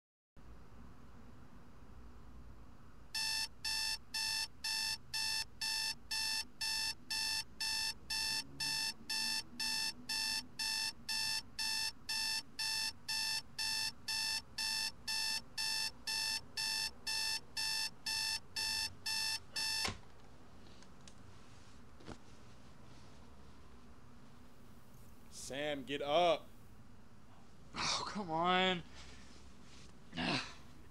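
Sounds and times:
alarm clock beeping: 0:03.2 - 0:19.9.

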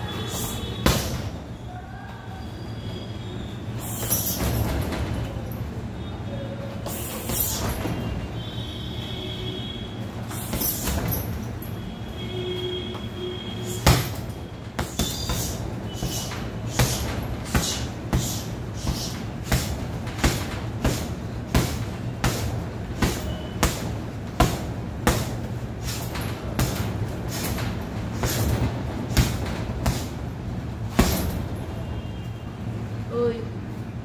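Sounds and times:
punching bag slaps: 0:00.4 - 0:01.4, 0:10.3 - 0:11.5, 0:13.6 - 0:30.2, 0:30.9 - 0:31.5
steady low hum: 0:02.8 - 0:34.0.

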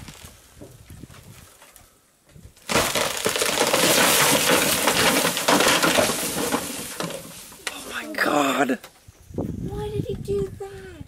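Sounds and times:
wood snapping and branches breaking: 0:02.5 - 0:08.0
tree crashing down: 0:02.6 - 0:08.3.

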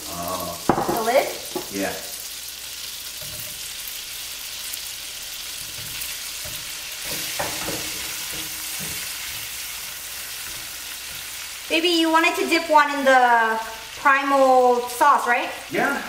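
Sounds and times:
sausage sizzling in a skillet: 0:00.0 - 0:16.0
utensil stirring and knocking in pan: 0:03.0 - 0:13.0.

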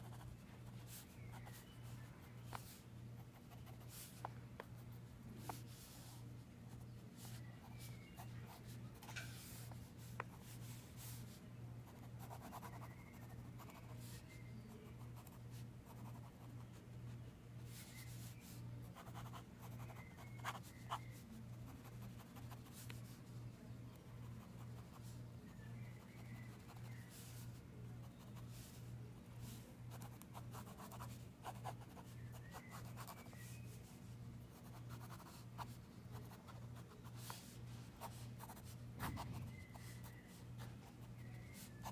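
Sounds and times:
low steady hum: 0:00.0 - 0:41.9
pen scratching on paper: 0:18.9 - 0:21.0, 0:29.9 - 0:32.0, 0:34.6 - 0:40.1.

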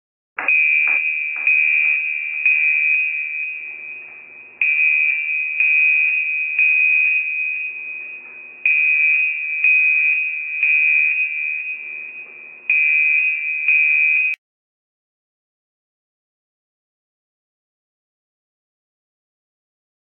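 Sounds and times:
high electronic alarm tone: 0:00.4 - 0:14.4.

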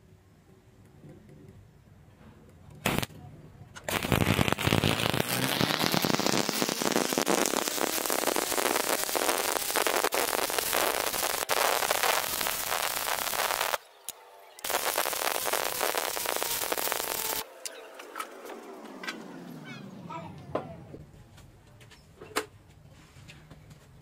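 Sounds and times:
welding arc crackling: 0:02.8 - 0:03.1, 0:03.9 - 0:13.8, 0:14.6 - 0:17.5.

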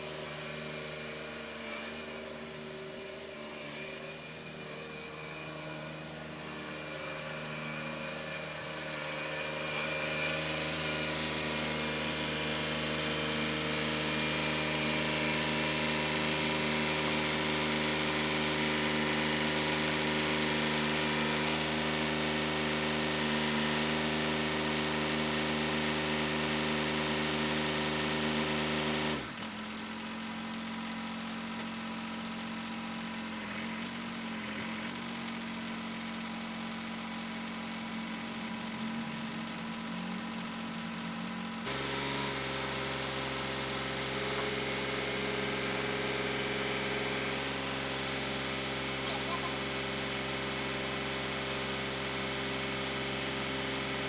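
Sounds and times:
tractor diesel engine running: 0:28.6 - 0:50.7.

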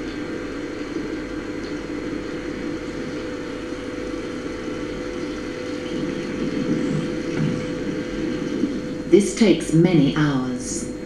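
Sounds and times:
ship engine and sea rumble: 0:00.0 - 0:11.0
steady hum: 0:00.0 - 0:11.0.

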